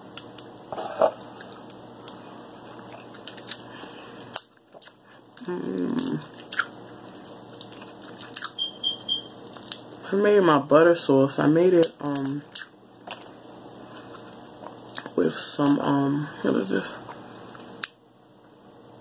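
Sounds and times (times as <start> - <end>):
chewing: 1.3 - 8.6
crab shell cracking: 1.4 - 8.6, 9.4 - 9.9
person humming: 5.4 - 6.2.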